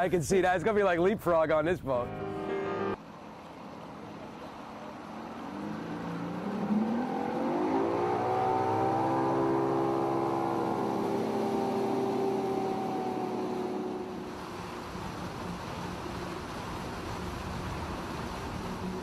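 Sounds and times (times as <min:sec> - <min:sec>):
outboard motor accelerating: 0:03.8 - 0:19.0.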